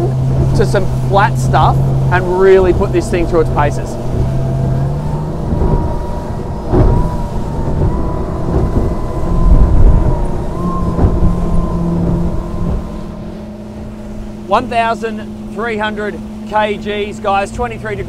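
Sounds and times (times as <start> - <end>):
outboard engine drone: 0.0 - 18.0
rush of wind and water: 0.0 - 18.0
sharp thump: 6.6 - 10.1.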